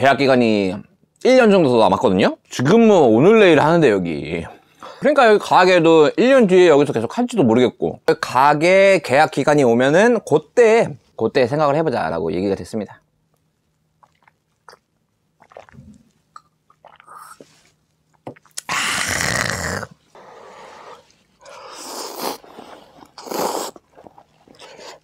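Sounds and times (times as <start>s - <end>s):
chewing: 13.3s - 17.5s, 22.4s - 25.0s
slurping noodles: 15.4s - 16.1s, 18.6s - 25.0s.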